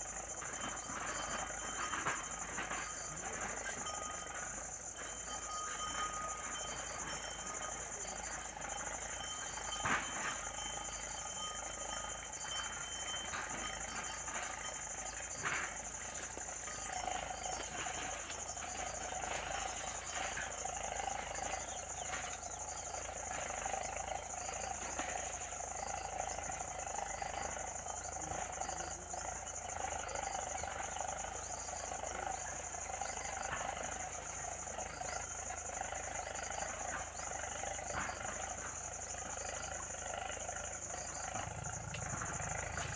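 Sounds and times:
frogs calling: 0.0 - 42.9
insects droning: 0.0 - 42.9.

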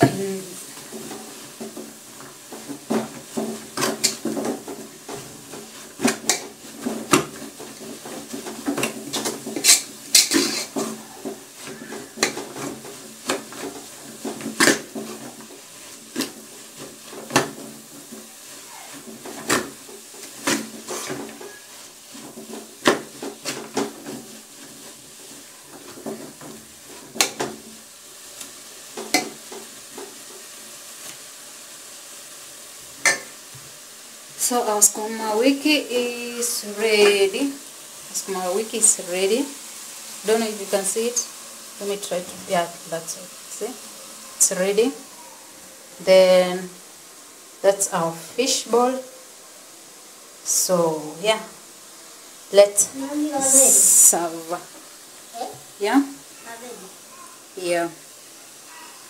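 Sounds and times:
faint sizzle of greens: 0.0 - 59.0
metal spoon scraping a metal pot: 9.1 - 11.0.

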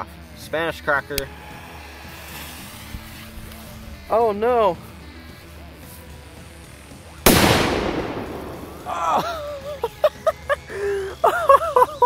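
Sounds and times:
firecracker bang: 7.3 - 9.4.

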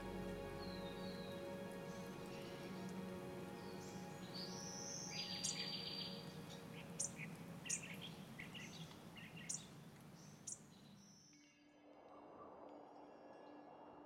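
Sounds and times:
low hum: 0.0 - 7.7
background hiss: 0.0 - 11.3
birds chirping: 0.0 - 11.3
soft music with held tones: 0.0 - 14.0.

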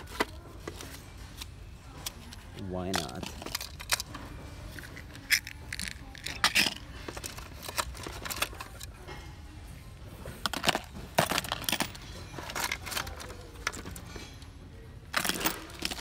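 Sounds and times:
fishing tackle clicking and rattling: 4.8 - 8.9.

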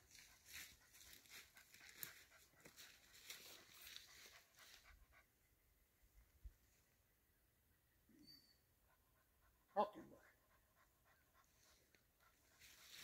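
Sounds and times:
rustling in dry leaves: 0.0 - 4.8, 12.6 - 13.0.

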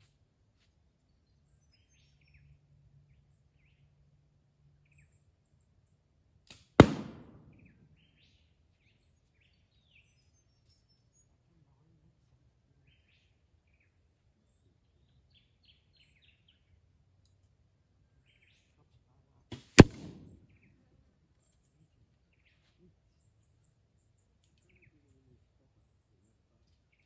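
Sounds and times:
faint birdsong: 0.0 - 27.0
arrow hitting cardboard target: 6.5 - 7.5, 19.6 - 20.4.

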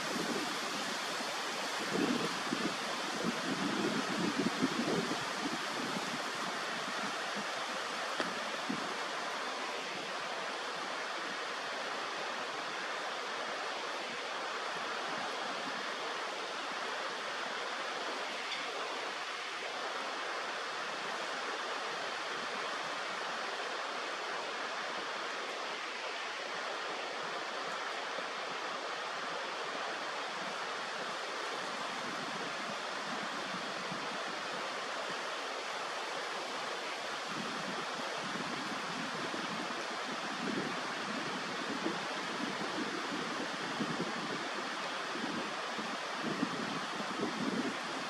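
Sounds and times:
wind buffeting microphone: 0.0 - 9.0
flowing water rushing: 0.0 - 48.0.

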